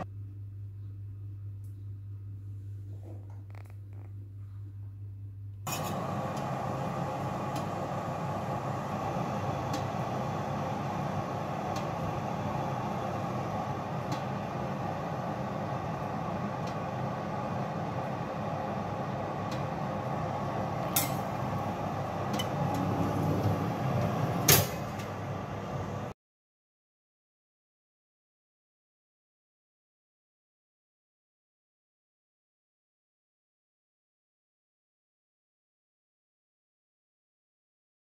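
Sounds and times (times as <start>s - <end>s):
oven fan whirring: 5.6s - 26.2s.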